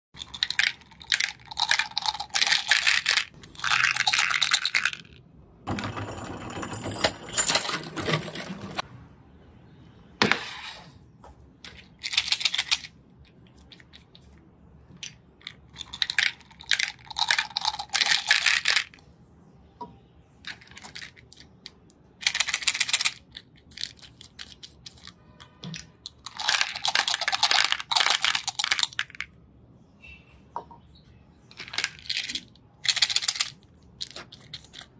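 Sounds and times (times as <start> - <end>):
hard candy rattling: 0.2 - 5.2, 11.8 - 12.9, 15.3 - 19.0, 20.5 - 25.2, 26.0 - 29.3, 31.6 - 34.9.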